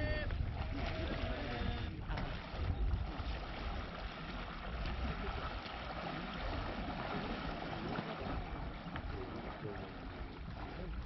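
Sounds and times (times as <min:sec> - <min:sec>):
low buffeting rumble: 0:00.0 - 0:11.0
water rushing: 0:00.0 - 0:11.0
wind noise: 0:00.0 - 0:11.0.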